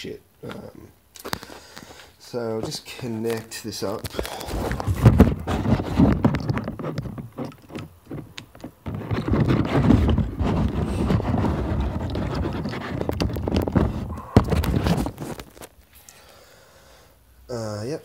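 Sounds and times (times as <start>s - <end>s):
microphone handling noise: 4.0s - 15.8s.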